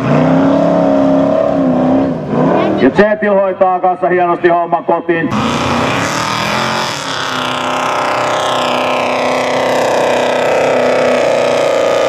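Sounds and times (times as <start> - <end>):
buggy engine labouring uphill: 5.3 - 12.0.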